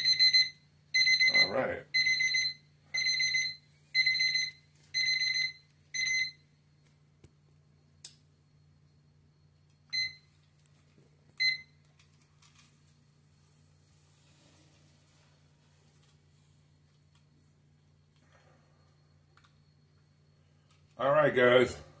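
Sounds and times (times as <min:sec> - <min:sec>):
phone alarm beeping: 0:00.0 - 0:06.6, 0:07.8 - 0:10.4, 0:11.4 - 0:11.8.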